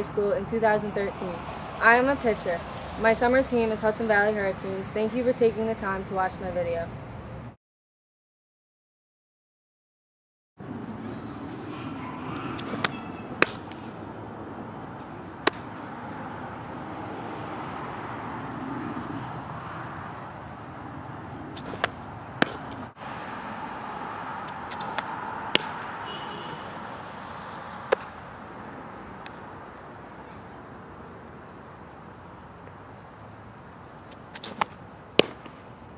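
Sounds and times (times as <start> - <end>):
outdoor background hum: 10.6 - 35.9
softballs smacking into mitt: 12.6 - 13.9, 15.4 - 15.9, 21.6 - 22.9, 24.4 - 25.8, 27.8 - 28.2, 34.1 - 35.6.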